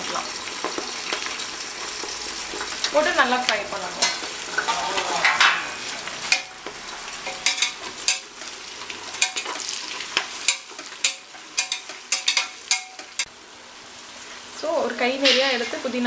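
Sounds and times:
onions sizzling in oil: 0.0 - 16.0
metal spatula scraping pot: 4.0 - 13.3.

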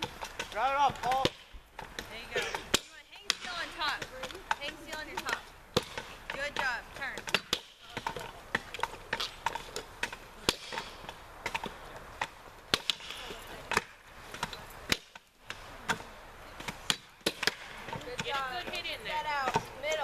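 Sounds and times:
axes chopping logs: 0.0 - 20.0.

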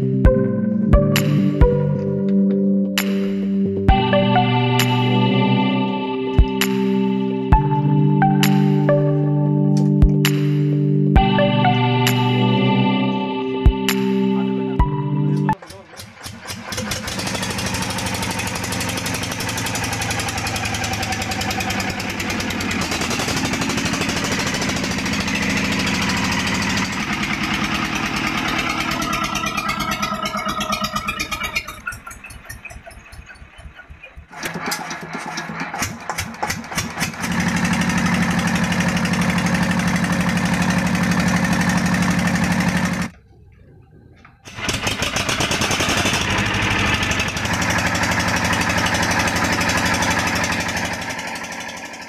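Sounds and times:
diesel engine knocking: 15.5 - 43.3, 44.4 - 52.0.

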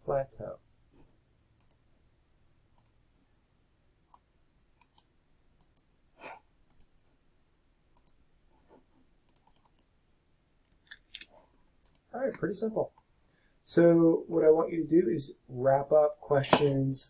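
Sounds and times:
computer mouse clicks: 1.6 - 1.9, 4.1 - 5.9, 6.6 - 7.0, 7.9 - 8.2, 9.2 - 10.0, 10.6 - 12.1.

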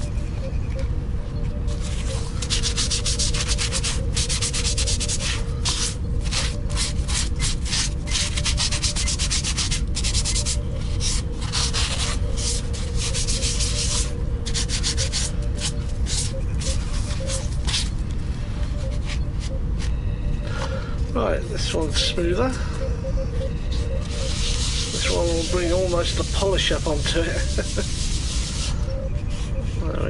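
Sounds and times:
sanding pad rubbing by hand: 1.7 - 18.0, 23.7 - 30.0.

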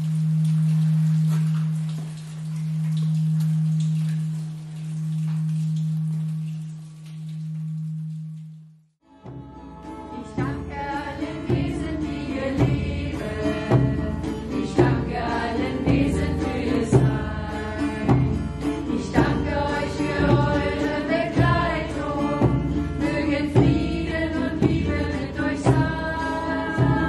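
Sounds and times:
acoustic guitar: 0.0 - 27.0
frame drum beating: 9.2 - 27.0
group chanting: 19.1 - 27.0.

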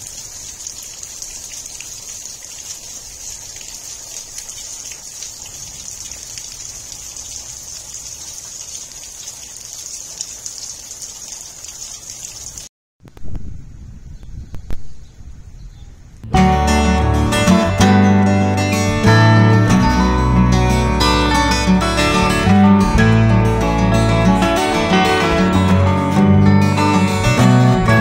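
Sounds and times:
rain falling through trees: 0.0 - 12.7.

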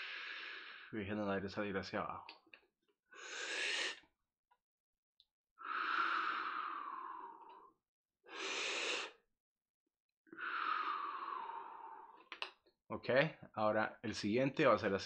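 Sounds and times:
man breathing deeply: 0.0 - 0.9, 3.2 - 4.0, 5.6 - 7.7, 8.3 - 9.2, 10.3 - 12.3.

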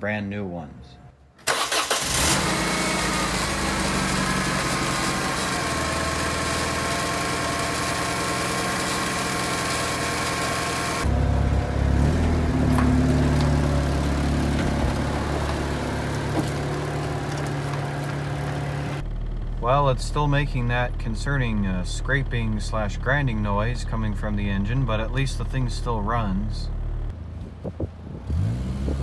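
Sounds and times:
grinding noise from engine: 2.0 - 19.4
car engine running: 2.0 - 28.5
car driving slowly: 2.2 - 29.0.

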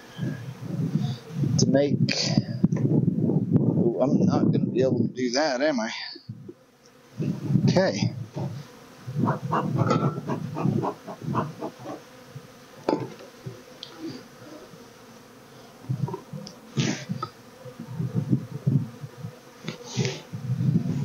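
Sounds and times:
honeybees buzzing: 0.0 - 2.0, 5.9 - 21.0
short hissing puffs: 13.8 - 14.6, 16.6 - 17.4, 19.6 - 20.5.

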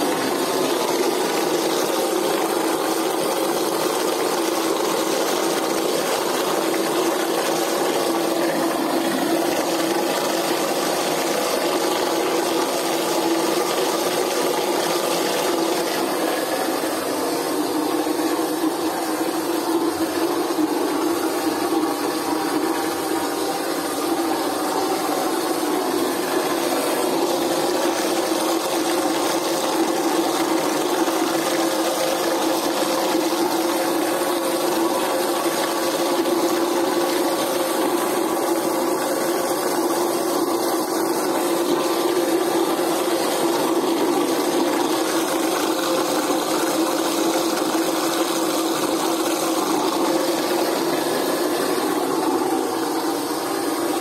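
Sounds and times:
electric mixer motor humming: 0.0 - 54.0.

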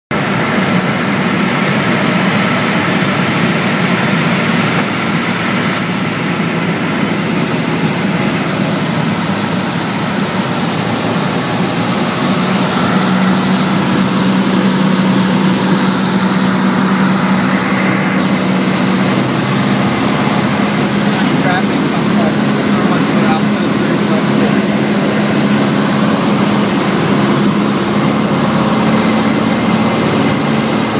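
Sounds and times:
light aircraft engine and propeller droning: 0.1 - 30.9
low hum: 0.2 - 30.9.

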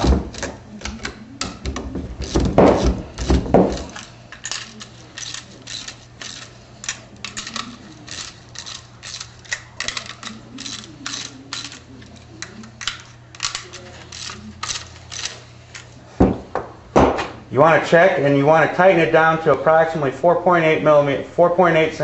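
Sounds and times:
socket ratchet clicking: 3.3 - 15.4.

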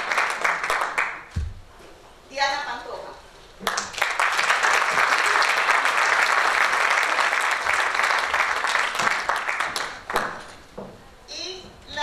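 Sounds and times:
audience applauding: 0.0 - 1.3, 3.6 - 10.5.

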